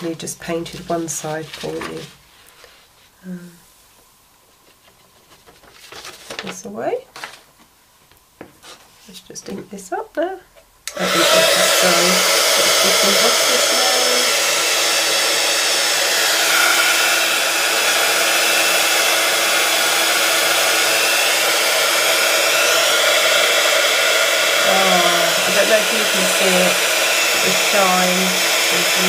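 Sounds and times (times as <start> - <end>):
heat gun blowing hot air: 10.9 - 29.0.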